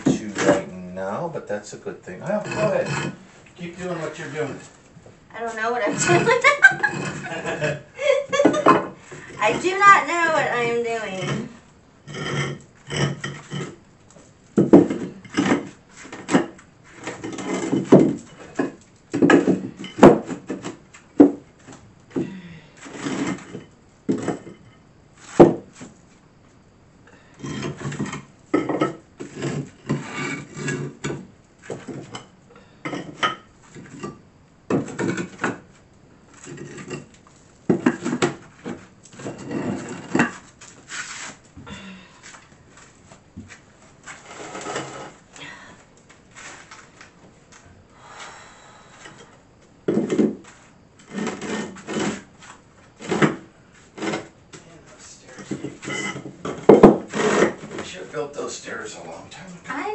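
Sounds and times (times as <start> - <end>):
tile scraping across floor: 2.2 - 4.7, 5.4 - 7.8, 8.4 - 13.8, 14.6 - 20.8, 22.8 - 26.0, 27.4 - 32.2, 36.3 - 37.1, 37.7 - 41.5, 42.2 - 45.2, 46.3 - 47.0, 49.9 - 54.3, 55.0 - 57.9.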